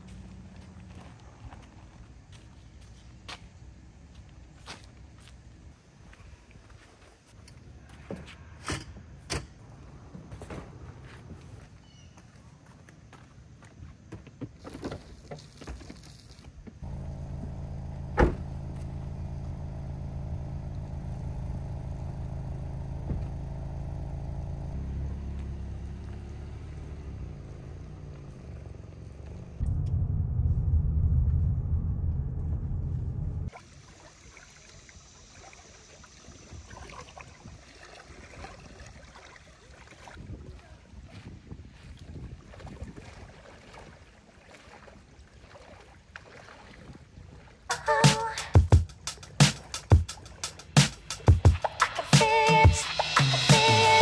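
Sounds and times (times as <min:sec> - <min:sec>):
car engine idling: 0:16.8 - 0:33.5
sharp thump: 0:18.1 - 0:18.6
low rumble: 0:29.3 - 0:33.5.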